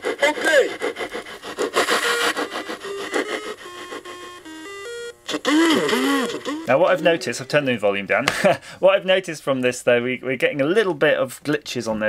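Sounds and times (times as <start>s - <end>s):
chiptune melody over beat: 1.7s - 7.8s.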